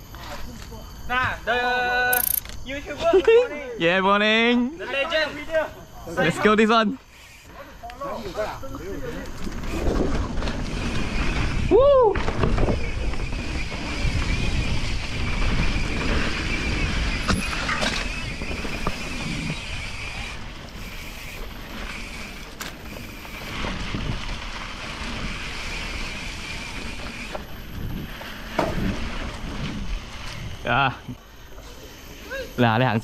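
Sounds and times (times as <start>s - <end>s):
steady high buzz: 0.0s - 9.0s
tyres rolling on dirt: 8.9s - 30.6s.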